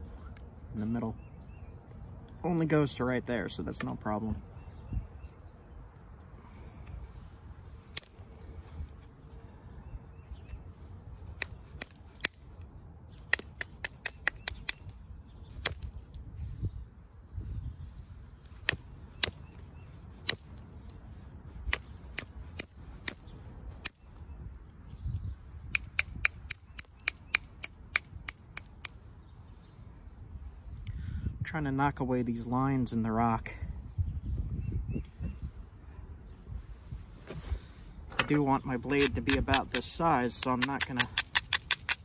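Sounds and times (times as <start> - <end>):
billet striking flint: 11.4 - 16.2, 18.4 - 21.0, 21.7 - 24.2, 25.7 - 29.0, 38.1 - 42.0.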